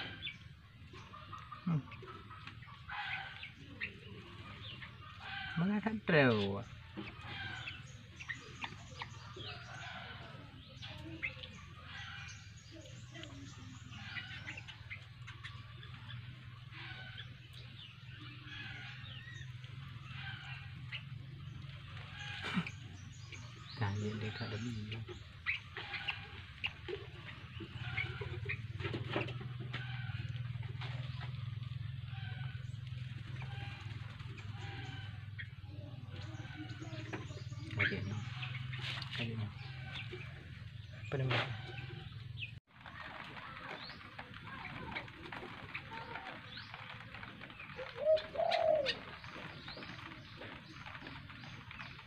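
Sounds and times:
low cooing bird call: 44.5s - 51.0s.

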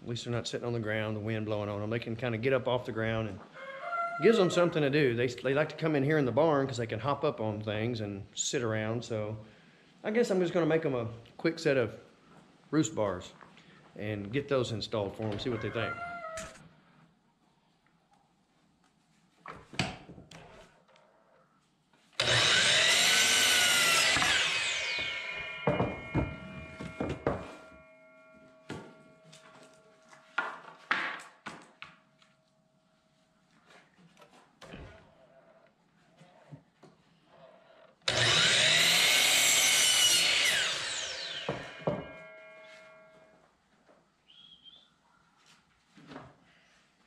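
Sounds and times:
miter saw cutting wood: 22.2s - 29.0s, 38.1s - 43.2s
saw blade ringing: 22.2s - 30.6s, 38.1s - 43.4s
wooden knocks: 25.6s - 27.7s, 41.5s - 42.2s.

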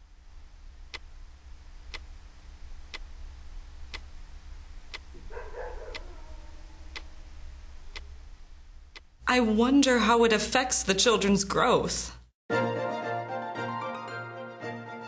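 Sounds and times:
low steady hum: 0.0s - 12.3s
clock ticking: 1.9s - 2.1s, 2.9s - 3.1s, 3.9s - 4.1s, 4.9s - 5.1s, 8.9s - 9.1s.

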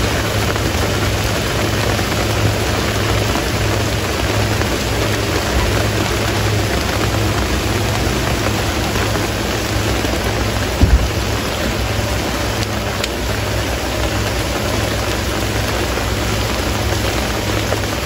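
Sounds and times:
steady rain falling: 0.0s - 18.0s
low thump: 10.8s - 11.8s.

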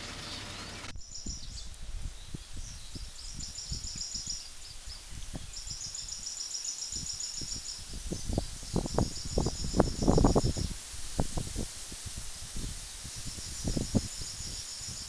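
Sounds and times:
wind buffeting microphone: 0.9s - 15.0s.

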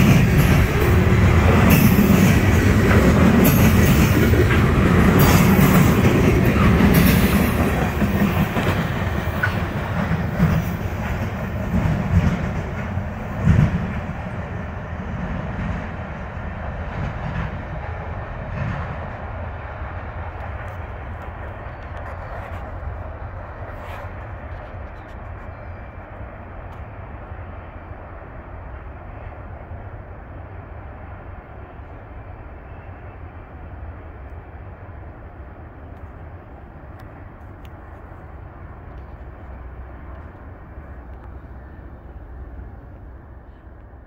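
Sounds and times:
train wheels clacking on rails: 0.0s - 26.9s.

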